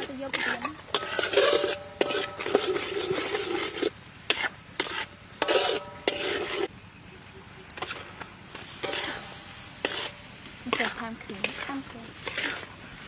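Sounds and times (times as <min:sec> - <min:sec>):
metal spatula scraping a wok: 0:00.0 - 0:06.7, 0:07.8 - 0:13.0
oil sizzling: 0:00.0 - 0:06.7, 0:07.8 - 0:13.0.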